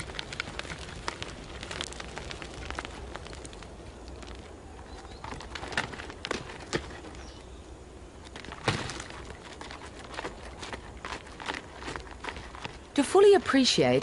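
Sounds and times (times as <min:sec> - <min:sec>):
hooves and stones tapping on rock: 0:00.0 - 0:07.5, 0:08.2 - 0:14.0
faint outdoor background: 0:00.0 - 0:14.0.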